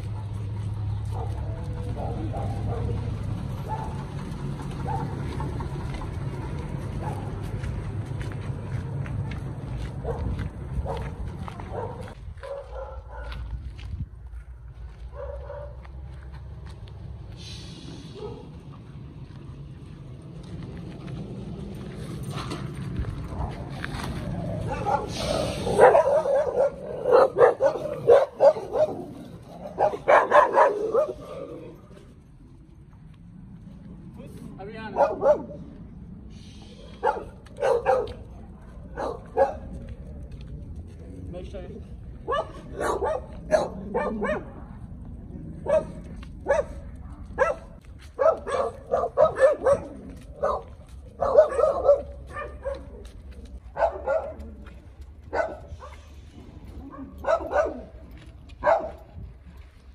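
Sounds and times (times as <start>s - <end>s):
dogs barking: 0.0s - 5.6s, 6.9s - 7.6s, 10.0s - 13.5s, 15.1s - 15.9s, 18.1s - 18.6s, 24.4s - 31.7s, 34.9s - 35.7s, 36.9s - 39.8s, 42.2s - 44.8s, 45.5s - 56.1s, 56.8s - 59.1s.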